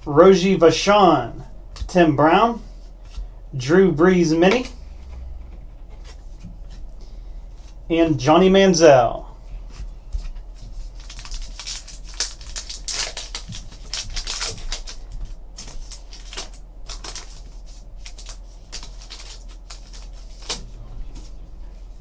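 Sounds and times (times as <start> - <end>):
cards being handled: 9.7 - 21.3
card pack wrapper tearing: 11.0 - 20.6.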